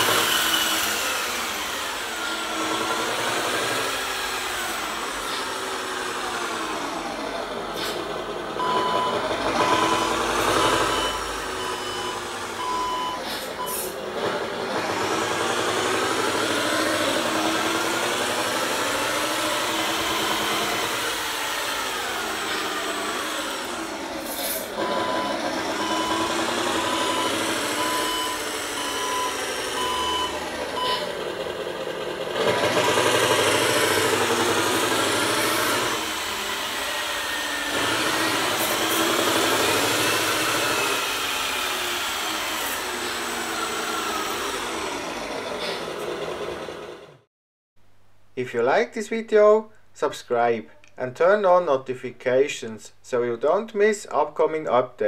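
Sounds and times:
simulated diesel engine on loudspeaker: 0:00.0 - 0:37.0
reversing beeper: 0:08.6 - 0:14.0, 0:19.8 - 0:21.0, 0:24.8 - 0:31.2.

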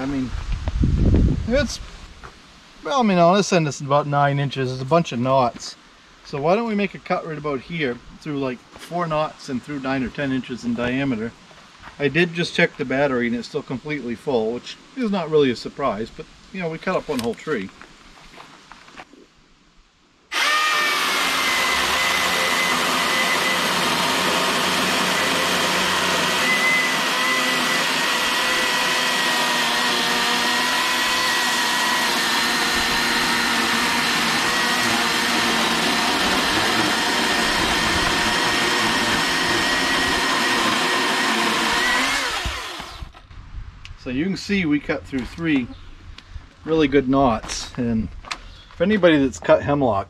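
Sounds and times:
electric chainsaw cutting log: 0:20.3 - 0:43.2.

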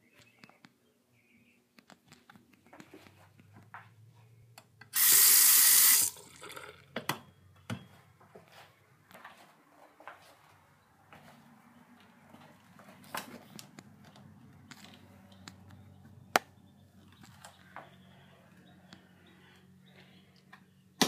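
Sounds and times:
water running into sink: 0:05.0 - 0:06.7.

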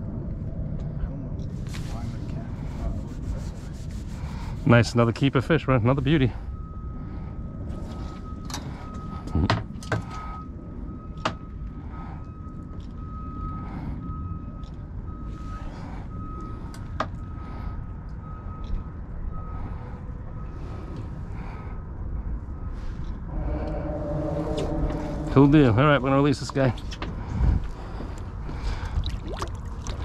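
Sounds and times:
low steady rumble: 0:10.2 - 0:30.0.

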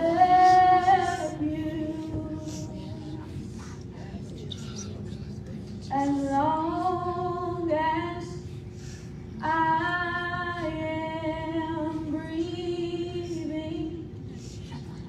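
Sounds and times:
woman singing long notes: 0:00.0 - 0:03.2.

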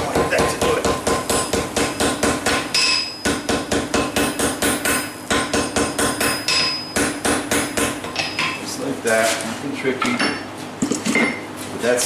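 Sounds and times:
hammer striking hot steel: 0:00.2 - 0:08.4
anvil ringing: 0:02.5 - 0:03.6, 0:04.2 - 0:08.4.

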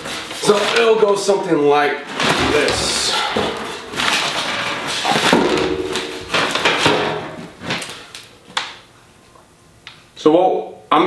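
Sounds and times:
metal panels scraping and knocking: 0:02.1 - 0:07.8
sheet metal flexing and rattling: 0:02.1 - 0:08.0.

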